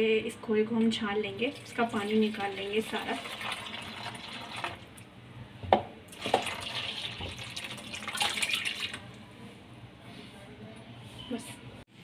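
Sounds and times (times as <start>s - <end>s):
liquid pouring and splashing: 1.5s - 5.0s, 6.1s - 9.1s.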